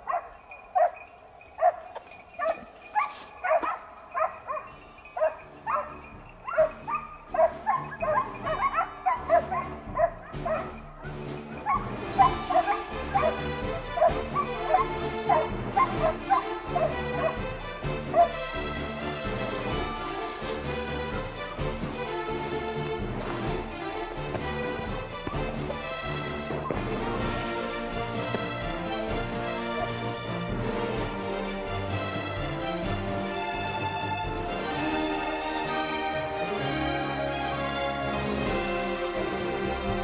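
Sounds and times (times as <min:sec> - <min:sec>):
hounds yelping barks: 0:00.0 - 0:18.5, 0:24.8 - 0:27.8, 0:29.1 - 0:30.2
background music: 0:00.0 - 0:40.0.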